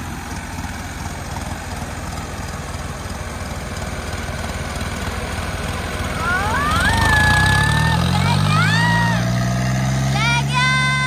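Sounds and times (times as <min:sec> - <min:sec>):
diesel tractor engines running: 0:00.0 - 0:11.0.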